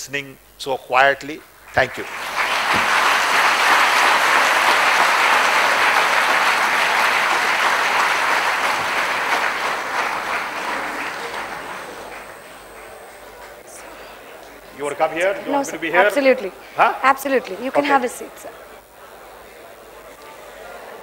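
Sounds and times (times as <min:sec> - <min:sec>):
audience applauding: 0:01.6 - 0:16.6.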